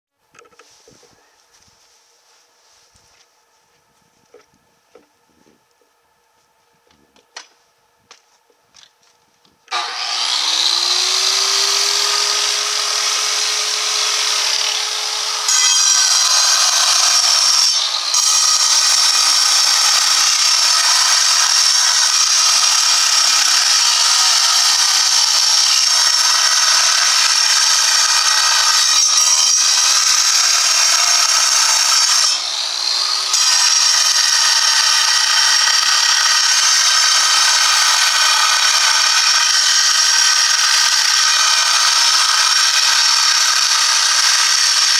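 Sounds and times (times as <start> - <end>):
angle grinder cutting stone: 9.7 - 44.9.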